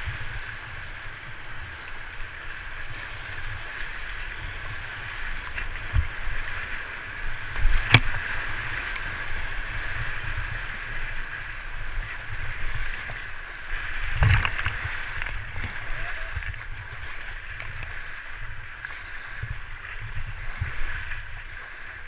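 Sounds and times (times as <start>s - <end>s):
whitewater rushing: 0.1s - 22.0s
kayak knocking: 7.6s - 8.2s, 14.0s - 18.0s.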